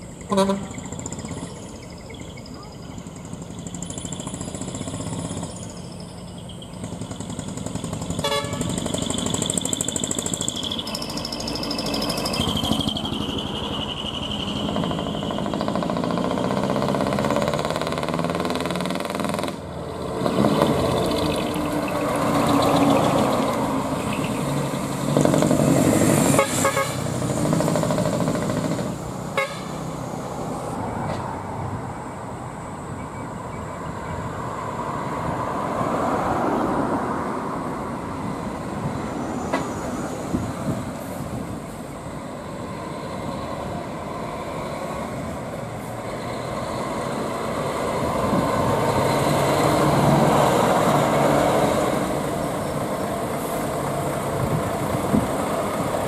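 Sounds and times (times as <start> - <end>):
truck engines rumbling: 0.0 - 56.0
truck horns: 0.2 - 1.0, 7.9 - 19.7, 20.4 - 30.0.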